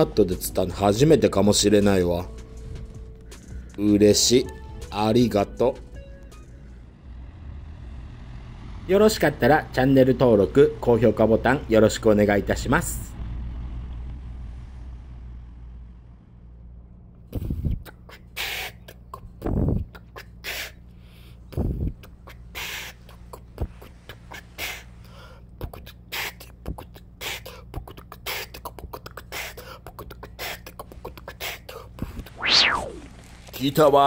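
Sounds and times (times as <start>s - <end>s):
person beatboxing: 17.3s - 20.8s, 21.5s - 24.9s, 25.5s - 32.4s.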